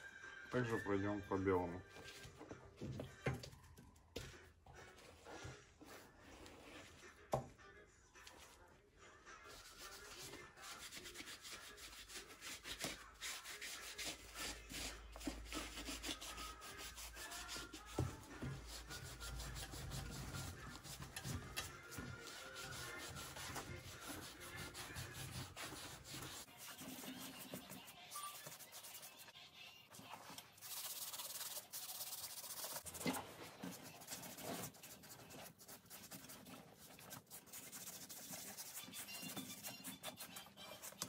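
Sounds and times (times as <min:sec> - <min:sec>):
sponge scrubbing rubber sole: 0:09.5 - 0:41.0.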